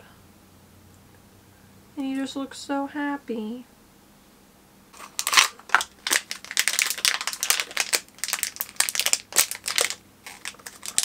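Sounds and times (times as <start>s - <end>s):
packaging crackling and rustling: 5.0s - 11.0s.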